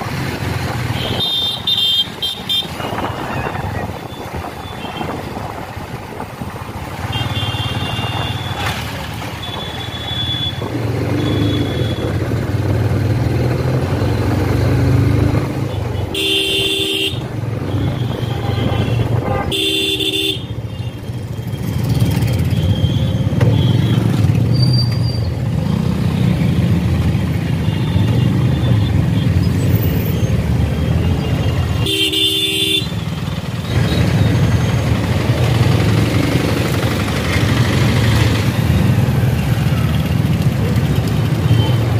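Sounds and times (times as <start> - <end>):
road noise: 0.0 - 41.9
loud horn honks: 16.0 - 20.5, 31.8 - 33.0.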